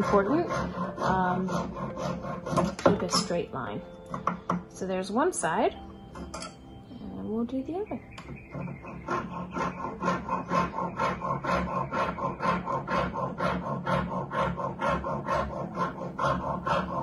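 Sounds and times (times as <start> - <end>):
saw rasping through wax: 0.0 - 3.5, 8.2 - 17.0.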